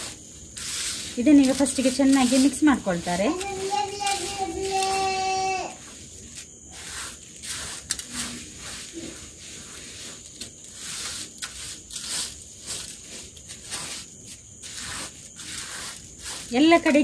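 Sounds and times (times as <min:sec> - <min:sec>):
hands squishing rice: 0:00.0 - 0:05.2, 0:05.8 - 0:17.0.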